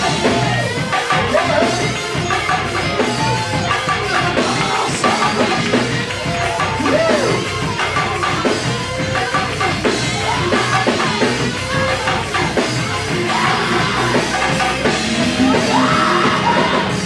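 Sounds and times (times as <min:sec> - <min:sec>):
band playing gospel music: 0:00.0 - 0:17.0
drum kit: 0:00.0 - 0:17.0
voices singing: 0:00.0 - 0:17.0.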